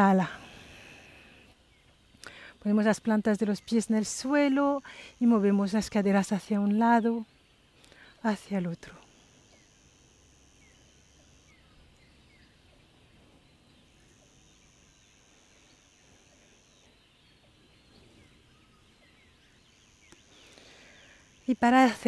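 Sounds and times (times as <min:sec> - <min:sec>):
high insect drone: 0:00.0 - 0:22.0
bird chirps: 0:10.5 - 0:21.6.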